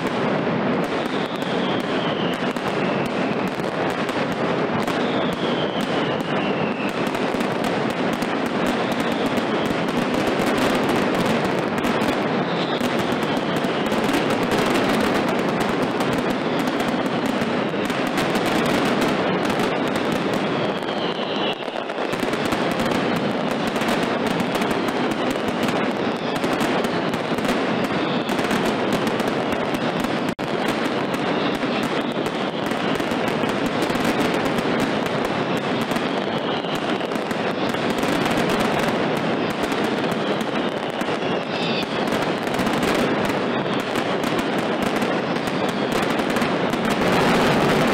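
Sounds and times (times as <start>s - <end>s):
firecrackers crackling: 0.0s - 47.9s
falling whistles: 1.0s - 3.5s, 4.9s - 7.0s, 12.3s - 14.2s, 20.4s - 22.2s, 35.9s - 37.8s.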